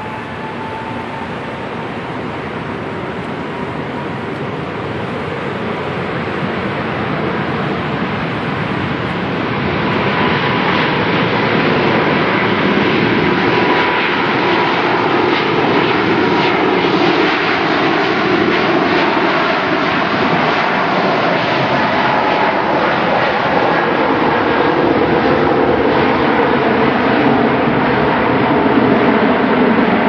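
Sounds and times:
faint steady whine: 0.0s - 10.2s
jet engines running: 0.0s - 30.0s.

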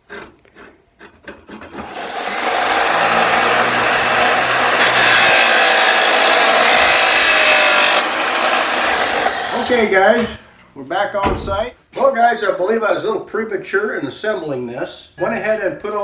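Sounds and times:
chop saw grinding metal: 1.2s - 9.8s
saw motor whine: 1.8s - 9.7s.

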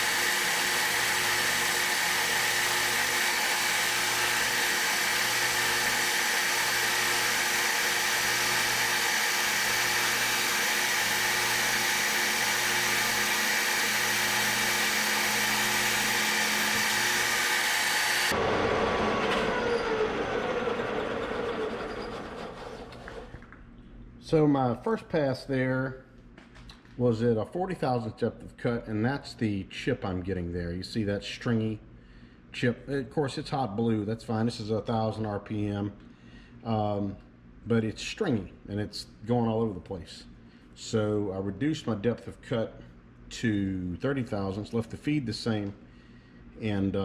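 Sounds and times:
metal lathe whine with cutting hiss: 0.0s - 22.4s.

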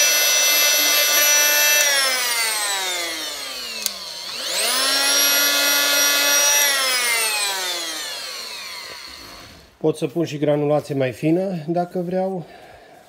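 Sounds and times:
multi-tool motor running: 0.0s - 9.8s.

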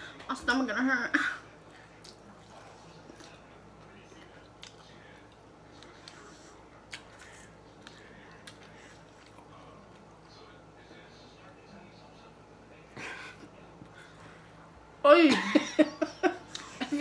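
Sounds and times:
low steady hum: 0.0s - 17.0s
person chewing: 1.7s - 10.3s.

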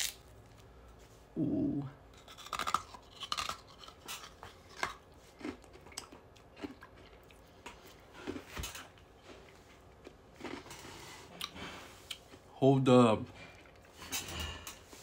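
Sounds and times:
chewing ice pop crunches: 2.2s - 10.7s.

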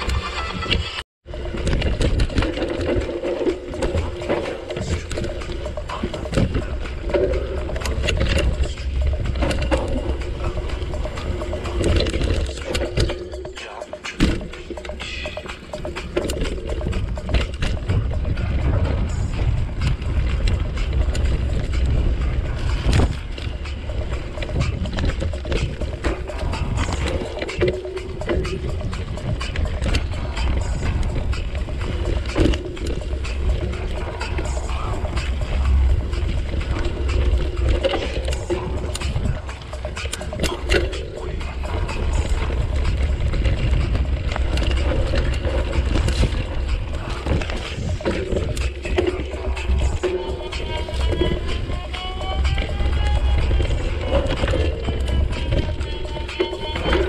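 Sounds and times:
bike clicking and rattling: 0.0s - 57.0s
wind buffeting microphone: 14.8s - 57.0s
bicycle tyres crunching on dirt: 28.4s - 57.0s.

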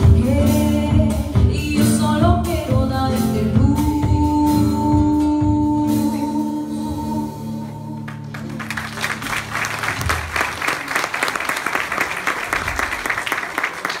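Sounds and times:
person singing: 0.0s - 8.2s
audience applause: 8.1s - 14.0s.

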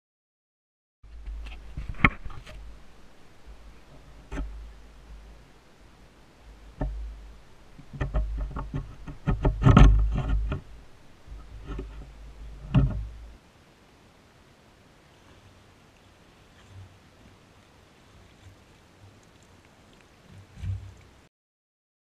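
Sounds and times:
plastic clicks and knocks: 7.8s - 10.7s, 11.3s - 13.2s.

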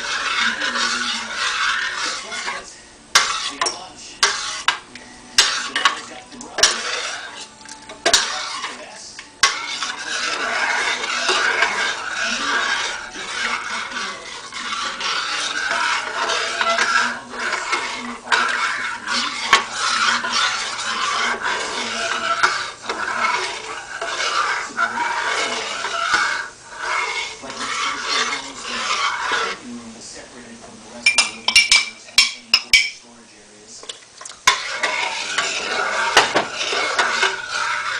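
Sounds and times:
metal spoon scraping saucepan: 0.0s - 29.8s, 30.4s - 33.0s, 33.8s - 37.9s
spoon clinking against pan: 31.0s - 33.0s.

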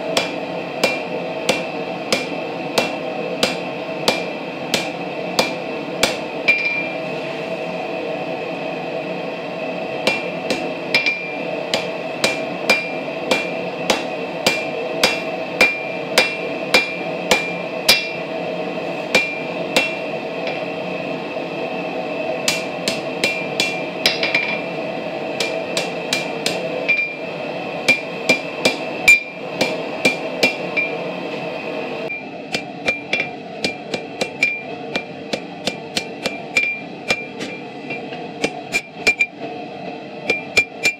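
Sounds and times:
hammer ringing on anvil: 0.2s - 7.0s, 10.0s - 18.2s, 19.1s - 20.6s, 22.5s - 24.7s, 25.4s - 27.2s, 27.9s - 31.0s, 32.1s - 39.3s, 40.3s - 40.9s.

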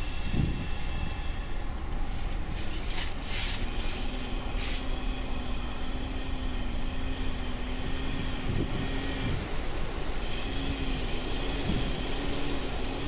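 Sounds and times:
wind blowing over microphone: 0.0s - 1.4s, 7.7s - 13.0s
faint steady hum: 0.0s - 13.0s.

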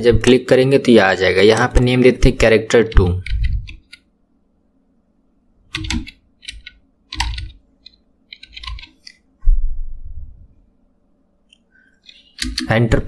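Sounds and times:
keyboard typing: 2.8s - 4.1s, 5.7s - 9.2s, 11.5s - 13.0s.

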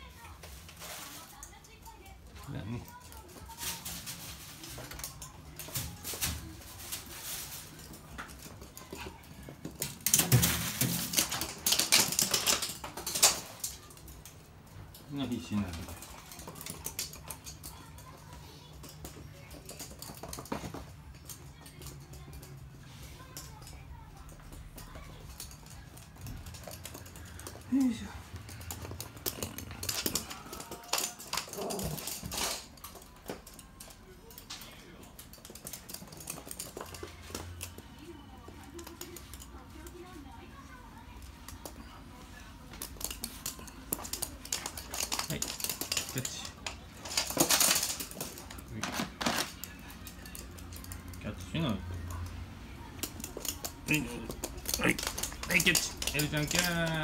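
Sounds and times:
plastic sheet rustling: 0.1s - 1.6s, 2.9s - 8.1s
dog claws clicking on hard floor: 0.4s - 57.0s.

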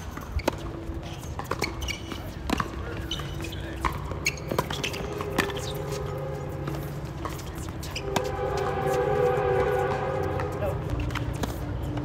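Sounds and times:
tennis ball hitting racquet: 0.0s - 8.7s, 10.3s - 12.0s
ball bouncing on hard court: 1.4s - 6.0s.

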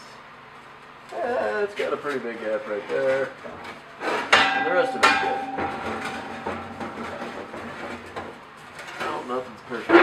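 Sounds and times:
exhaust pipe clanking on steel: 4.2s - 8.6s.

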